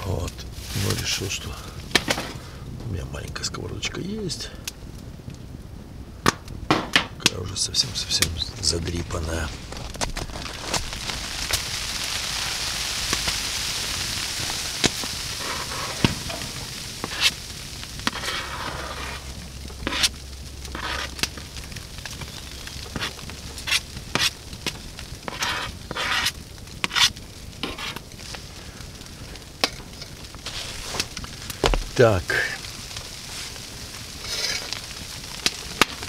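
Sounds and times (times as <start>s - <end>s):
light sizzling: 0.0s - 36.0s
steady hiss: 0.0s - 36.0s.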